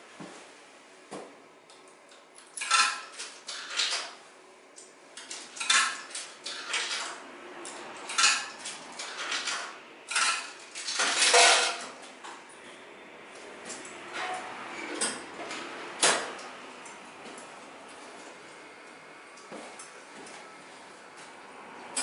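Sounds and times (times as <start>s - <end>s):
coins clinking into vending machine: 2.4s - 4.2s, 5.2s - 12.0s.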